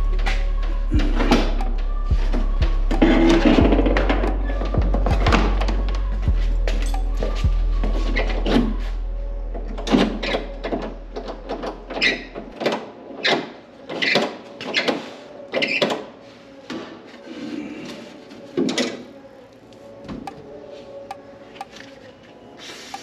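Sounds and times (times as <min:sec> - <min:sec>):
low hum: 0:00.0 - 0:12.5.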